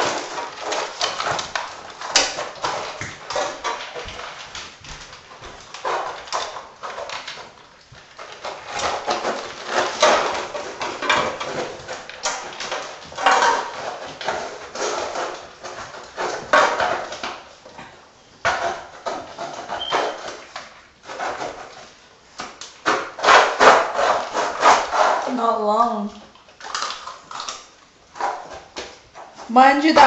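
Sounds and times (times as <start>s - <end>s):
puppies crunching kibble: 0.0s - 30.0s
claws clicking: 26.4s - 29.0s.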